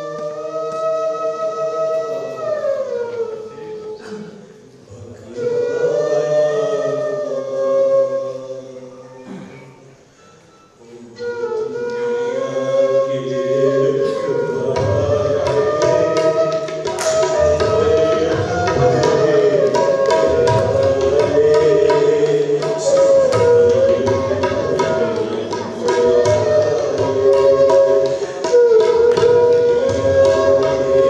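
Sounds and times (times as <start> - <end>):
wavering melody: 10.2 - 31.0
drum beats: 14.8 - 31.0.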